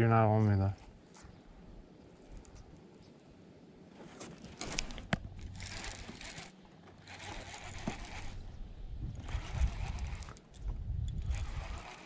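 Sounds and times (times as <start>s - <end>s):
fishing reel whirring: 5.5s - 8.5s, 9.1s - 12.0s.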